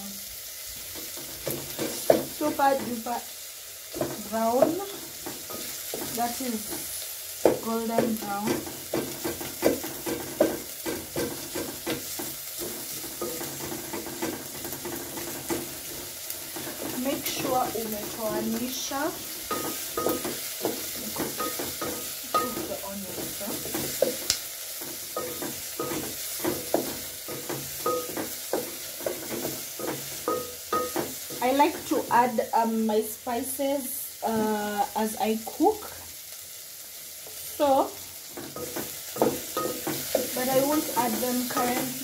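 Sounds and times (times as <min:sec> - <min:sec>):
onions sizzling in oil: 0:00.0 - 0:42.0
wooden spoon scraping a pot: 0:07.6 - 0:24.2.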